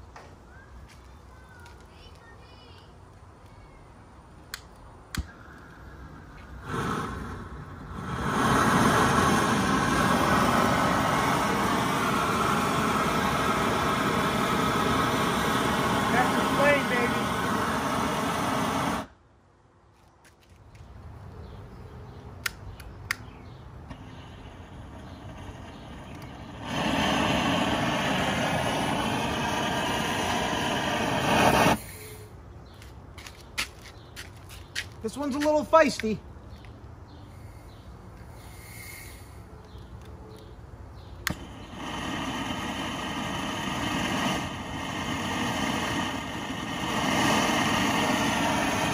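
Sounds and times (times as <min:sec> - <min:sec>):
torch flame rushing: 0:05.1 - 0:19.2, 0:23.9 - 0:32.3, 0:41.2 - 0:48.9.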